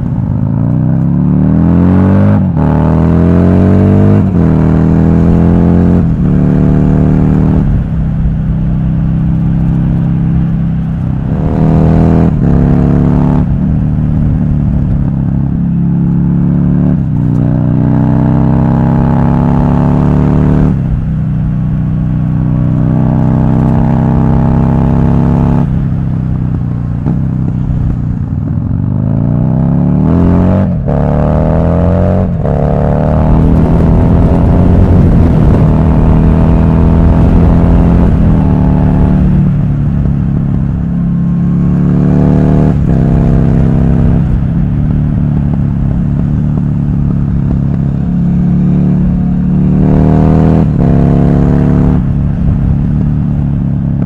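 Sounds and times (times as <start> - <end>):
motorcycle engine accelerating: 0.0 - 54.0
wind rushing past microphone: 30.1 - 54.0.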